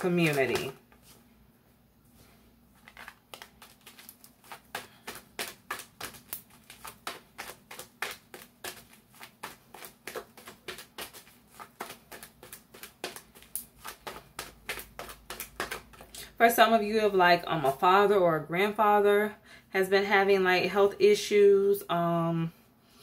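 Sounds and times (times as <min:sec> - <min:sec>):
cards being shuffled: 0:02.7 - 0:16.2.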